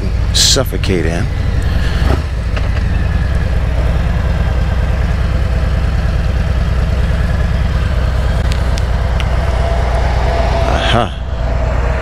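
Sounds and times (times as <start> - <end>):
motorcycle engine running at low revs: 0.0 - 12.0.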